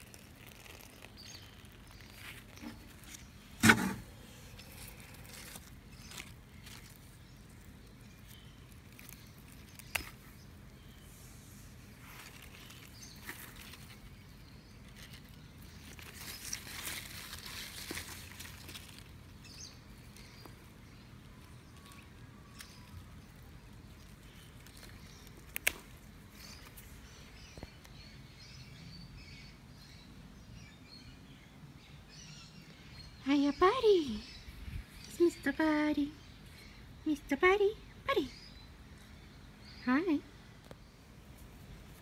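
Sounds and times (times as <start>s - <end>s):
leaves rustling: 0.0s - 28.2s, 40.6s - 42.0s.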